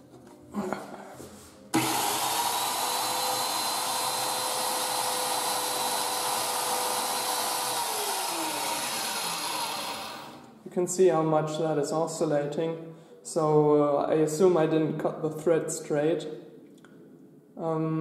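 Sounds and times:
hand drill motor whine: 1.8 - 10.5.

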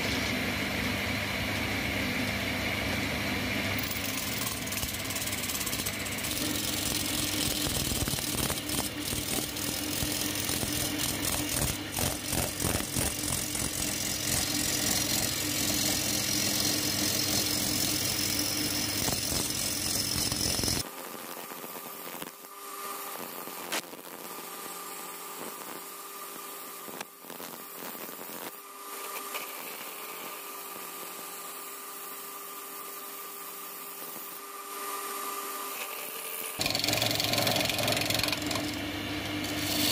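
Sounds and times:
chisel scraping spinning wood: 3.8 - 20.8, 35.6 - 39.9
wood lathe humming: 3.8 - 20.8, 35.0 - 39.9.

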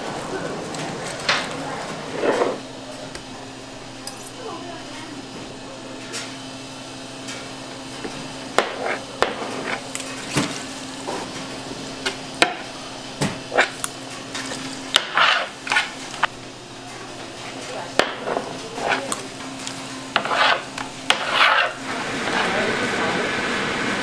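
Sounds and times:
machine hum: 0.0 - 24.0
metal scraper on cutting board: 8.6 - 9.8, 15.0 - 16.0, 20.1 - 21.8.

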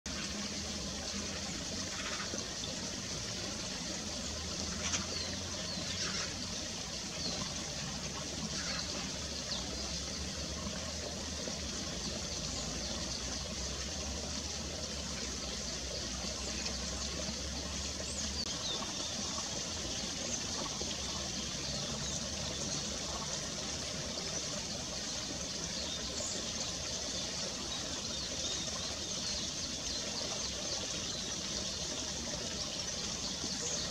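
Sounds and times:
stream water trickling: 0.1 - 33.9.

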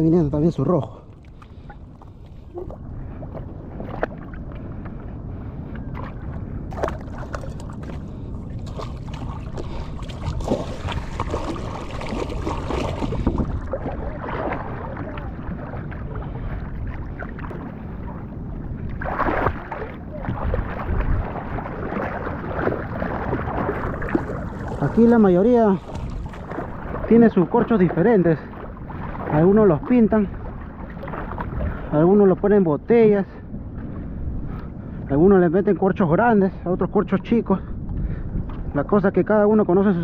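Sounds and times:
seawater sloshing and splashing: 0.9 - 32.2.

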